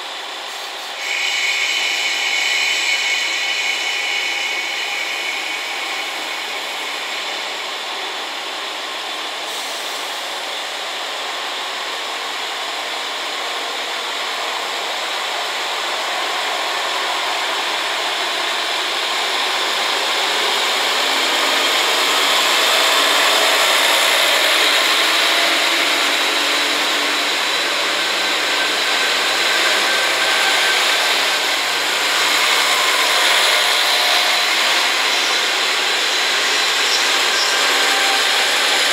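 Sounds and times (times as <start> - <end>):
diesel train passing: 0.0 - 38.9.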